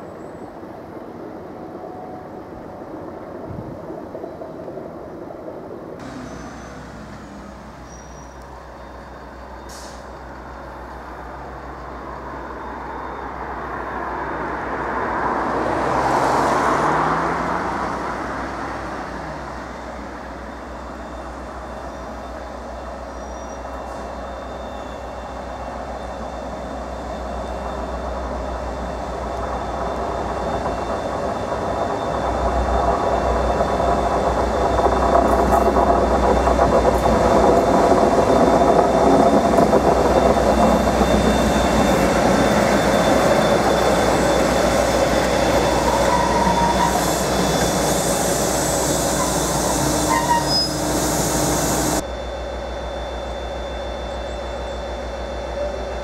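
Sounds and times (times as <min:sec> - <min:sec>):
train rumbling past: 0:00.0 - 0:56.0.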